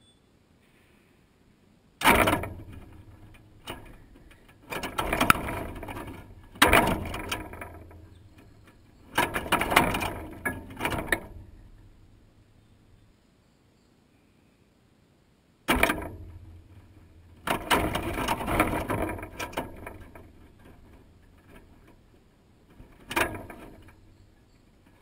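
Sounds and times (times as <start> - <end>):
bird rattling wire-mesh feeder: 2.0 - 12.2, 15.7 - 25.0.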